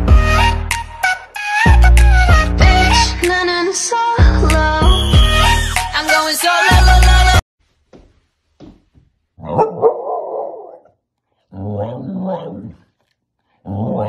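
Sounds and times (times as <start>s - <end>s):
dog howling: 9.4s - 10.9s.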